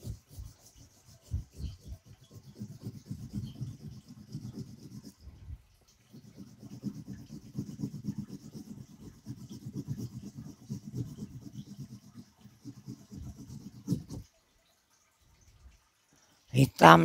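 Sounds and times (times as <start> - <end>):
crayon scratching on paper: 0.0 - 5.4, 6.1 - 14.3.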